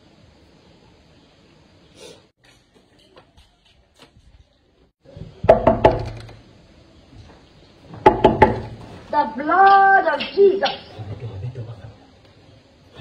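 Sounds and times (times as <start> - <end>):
loud knocking on a door: 5.4 - 6.2, 8.0 - 8.8.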